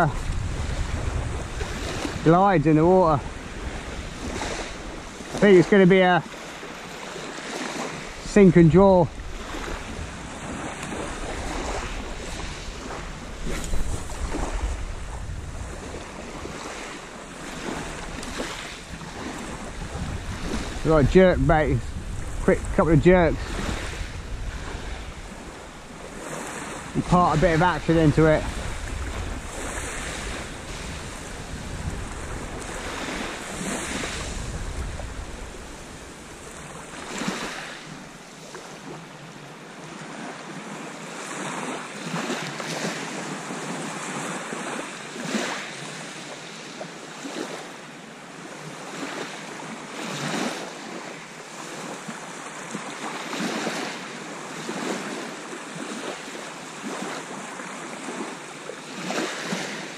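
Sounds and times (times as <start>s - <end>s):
wind buffeting microphone: 0.0s - 5.8s, 7.8s - 38.2s
waves washing over shingle: 0.0s - 39.2s, 39.8s - 47.8s, 48.8s - 59.9s.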